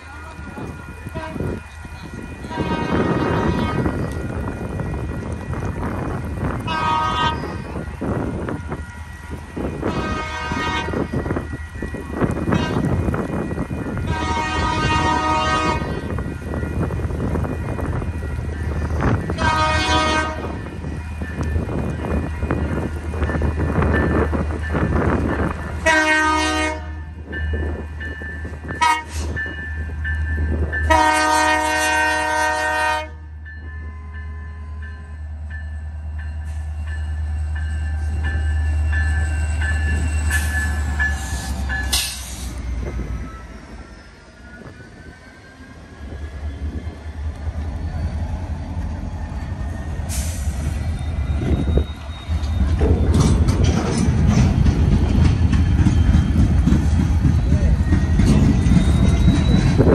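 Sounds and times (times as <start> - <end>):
locomotive air horn blasts: 1.1 - 1.5, 2.5 - 4.0, 6.6 - 7.5, 9.8 - 11.1, 12.5 - 12.9, 14.0 - 16.1, 19.4 - 20.6, 25.8 - 27.1, 28.8 - 29.3, 30.9 - 33.3
wheel squeals: 37.9 - 59.9
freight cars rumbling and clattering: 46.1 - 59.9.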